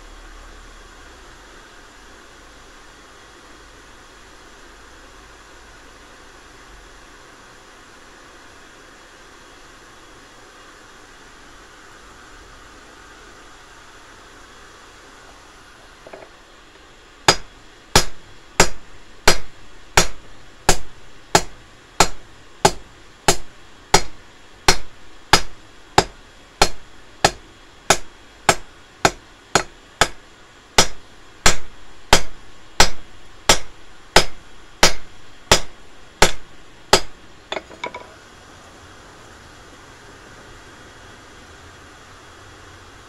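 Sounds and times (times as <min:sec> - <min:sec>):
hammer striking steel on anvil: 0:17.3 - 0:30.2, 0:30.8 - 0:38.1.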